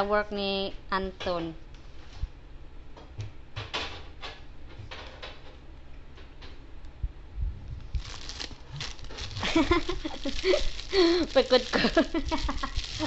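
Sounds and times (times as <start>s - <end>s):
cellophane crinkling: 7.9s - 13.0s
person speaking: 9.2s - 13.0s.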